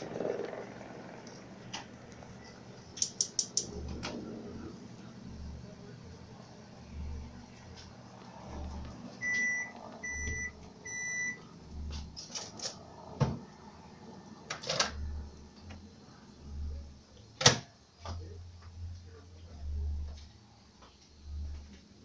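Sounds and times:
sharp clicks: 0:03.0 - 0:03.7
low throb: 0:03.6 - 0:12.2, 0:15.0 - 0:17.2, 0:18.1 - 0:20.5, 0:21.2 - 0:21.8
short electronic beeps: 0:09.2 - 0:11.4.

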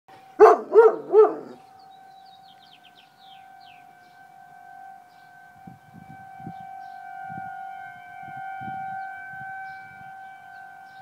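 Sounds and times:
siren holding a steady tone: 0:00.1 - 0:11.0
dog howling loudly: 0:00.4 - 0:01.6.

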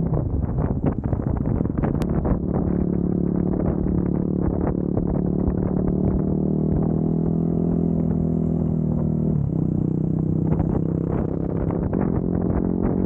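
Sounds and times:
motorcycle engine riding: 0:00.0 - 0:13.0.

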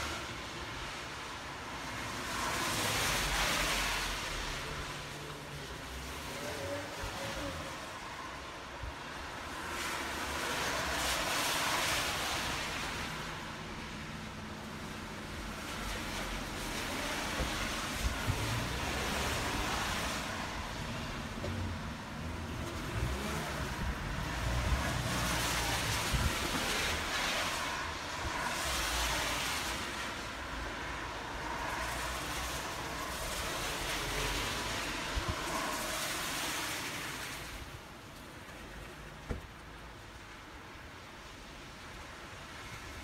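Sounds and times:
rain: 0:00.0 - 0:43.0
traffic on a wet road: 0:00.0 - 0:43.0
wind rumbling on microphone: 0:15.4 - 0:28.8.

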